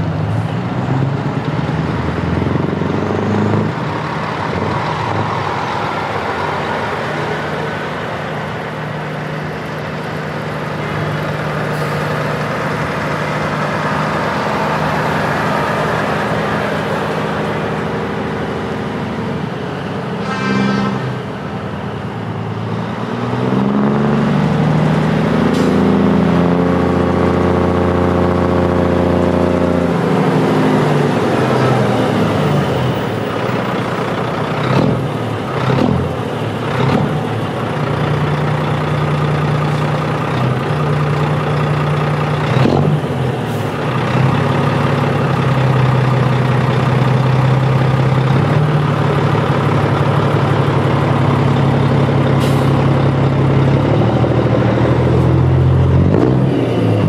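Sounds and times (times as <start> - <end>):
truck diesel engines passing: 0.0 - 57.0
truck horn blast: 20.1 - 21.4.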